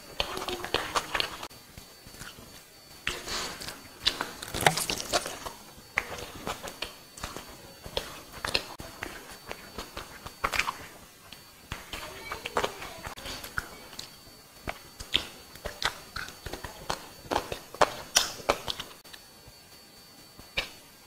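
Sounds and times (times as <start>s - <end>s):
fingers squishing rice: 2.1s - 19.0s
chewing with wet lip smacks: 13.4s - 18.9s.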